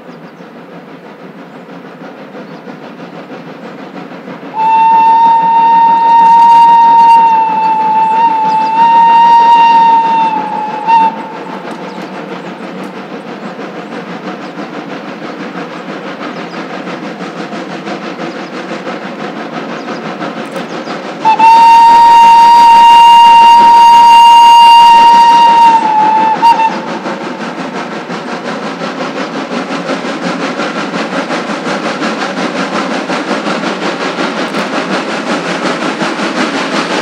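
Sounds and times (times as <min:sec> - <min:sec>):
steam locomotive exhaust beats: 0:00.0 - 0:37.0
steam locomotive whistle: 0:04.5 - 0:12.6, 0:21.2 - 0:27.4.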